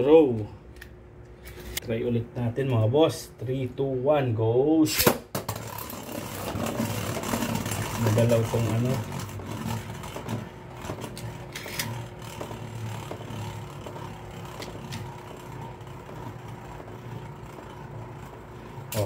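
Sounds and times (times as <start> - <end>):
spinning top whirring: 5.3 - 19.0.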